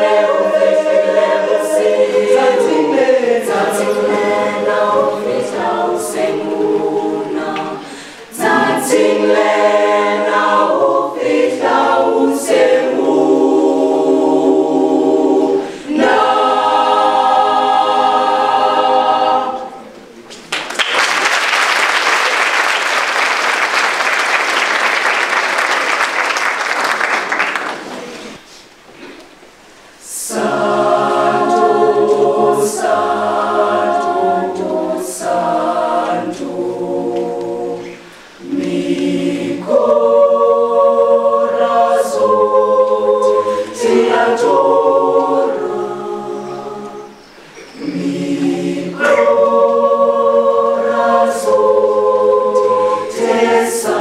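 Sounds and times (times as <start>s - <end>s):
choir singing a cappella: 0.0s - 20.0s, 29.9s - 54.0s
audience applauding: 20.5s - 28.4s.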